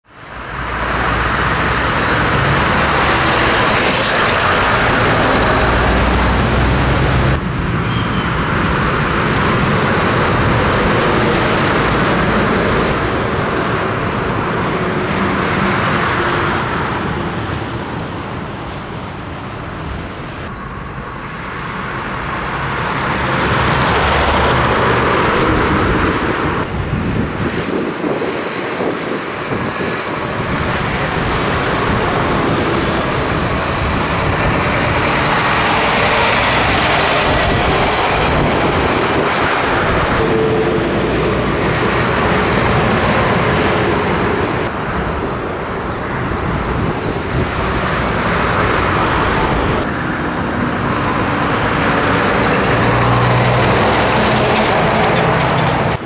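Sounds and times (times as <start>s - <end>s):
road and tyre noise: 0.0s - 56.0s
diesel engine running: 30.0s - 45.6s.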